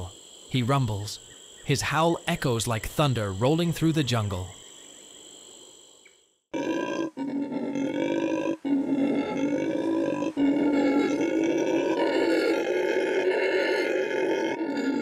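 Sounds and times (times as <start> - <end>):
howler monkey roaring: 6.5 - 15.0.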